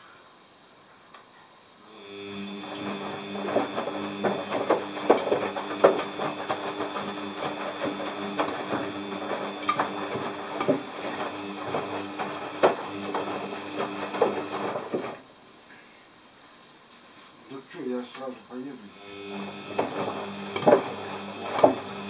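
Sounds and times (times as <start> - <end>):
washing machine motor hum: 1.8 - 15.3, 18.8 - 22.0
laundry clunking in drum: 2.6 - 15.2.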